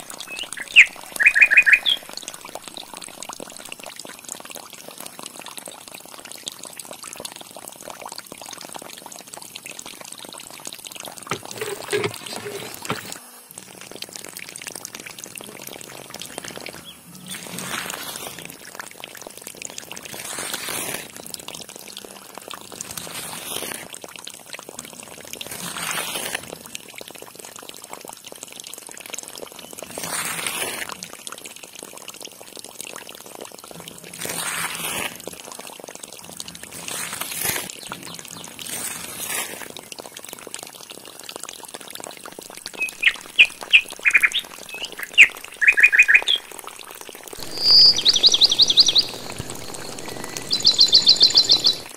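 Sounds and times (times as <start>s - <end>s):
bird chirping: 0.0s - 2.1s, 42.8s - 46.5s, 47.4s - 51.9s
water pouring and splashing: 0.0s - 51.9s.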